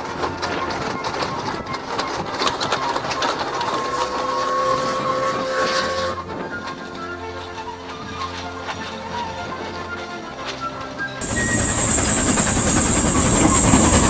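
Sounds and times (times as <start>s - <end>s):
steam locomotive running: 0.0s - 14.0s
wheels clicking over rail joints: 0.0s - 14.0s
steam whistle: 1.9s - 7.1s, 11.2s - 14.0s.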